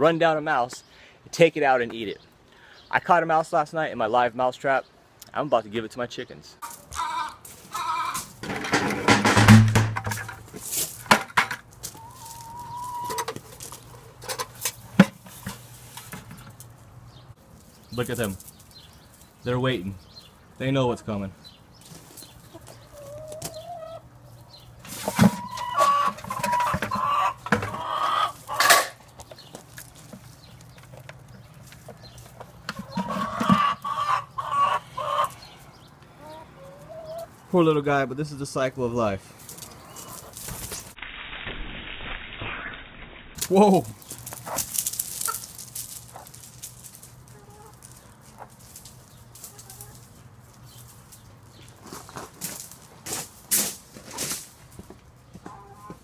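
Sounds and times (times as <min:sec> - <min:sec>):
hens calling: 0:06.6 - 0:09.2, 0:11.7 - 0:40.8, 0:43.5 - 0:51.7, 0:55.3 - 0:56.0
plastic bucket knocks: 0:08.4 - 0:10.4.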